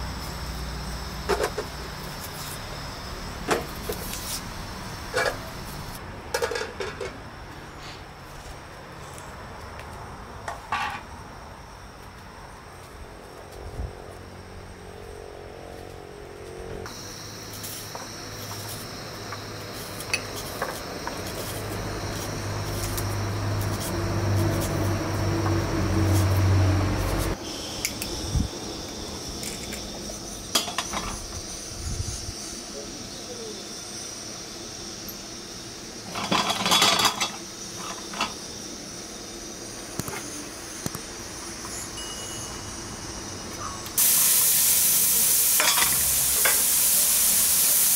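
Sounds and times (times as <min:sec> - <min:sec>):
insect chirring: 0:00.0 - 0:06.0, 0:14.0 - 0:47.0
steady humming drone: 0:00.0 - 0:07.8, 0:11.8 - 0:44.0
dishes and utensils clinking: 0:36.1 - 0:38.4, 0:45.6 - 0:46.6.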